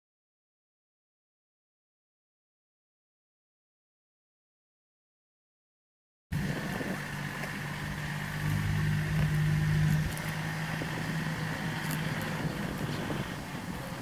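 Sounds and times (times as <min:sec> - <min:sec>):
motor engine humming: 0:06.3 - 0:14.0.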